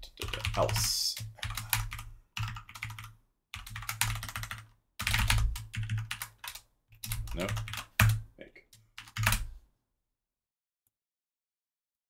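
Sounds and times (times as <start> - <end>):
fast typing on keyboard: 0.1 - 8.2, 8.8 - 9.5.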